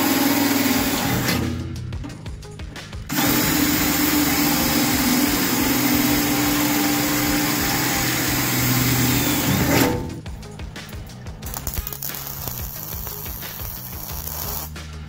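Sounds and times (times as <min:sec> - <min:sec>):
cordless drill boring through steel: 0:03.1 - 0:09.7.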